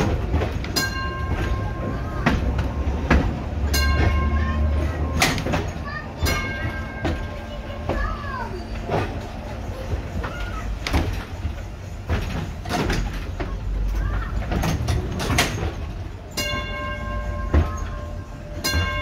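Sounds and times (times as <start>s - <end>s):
clanks and knocks from wheels: 0.0s - 19.0s
streetcar rumbling on track: 0.0s - 19.0s
bell ringing: 0.7s - 2.6s, 3.6s - 5.1s, 16.3s - 19.0s.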